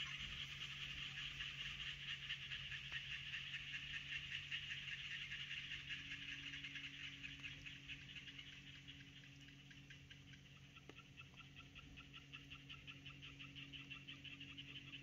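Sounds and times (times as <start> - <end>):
chorus of chirring animal calls: 0.0 - 4.7.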